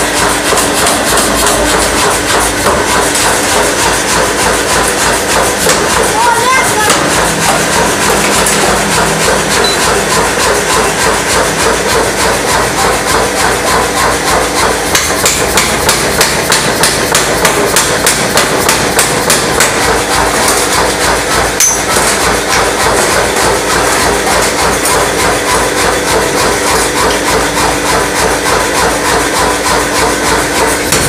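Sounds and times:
machine running noise: 0:00.0 - 0:31.0
power hammer blows on hot metal: 0:00.0 - 0:31.0.

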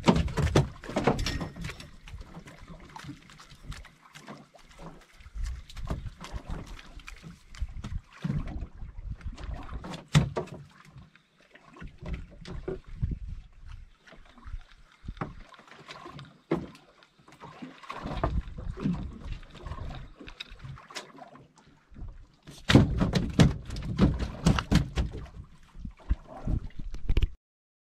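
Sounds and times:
knocks and thumps on boat deck: 0:00.0 - 0:02.5, 0:09.4 - 0:10.7, 0:22.0 - 0:26.3.

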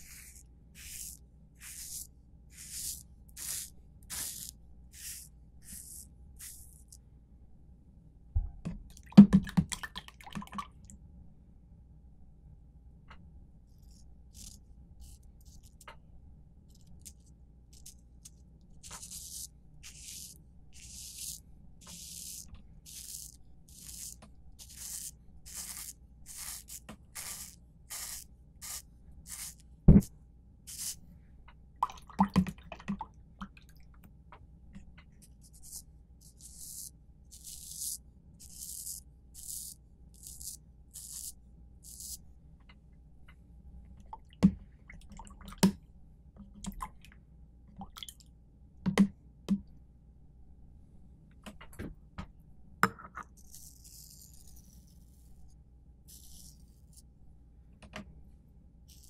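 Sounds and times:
razor scraping through shaving cream: 0:00.0 - 0:07.0, 0:13.8 - 0:15.8, 0:16.7 - 0:29.6, 0:30.7 - 0:31.0, 0:35.4 - 0:42.2, 0:53.4 - 0:55.4, 0:56.1 - 0:57.0.

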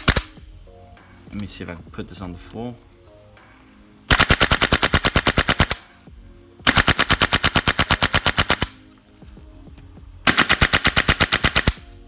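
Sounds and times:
airsoft rifle full-auto bursts: 0:00.0 - 0:00.3, 0:04.1 - 0:05.8, 0:06.7 - 0:08.8, 0:10.3 - 0:11.8.

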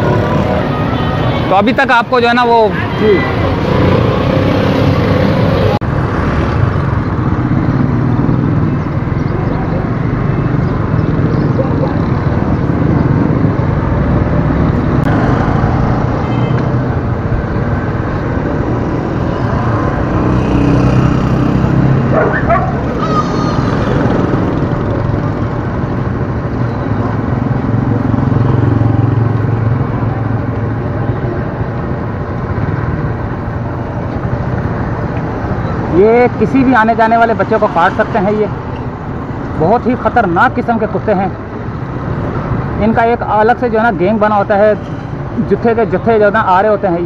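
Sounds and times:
street traffic: 0:00.0 - 0:47.0
wavering high cry: 0:22.3 - 0:24.1.

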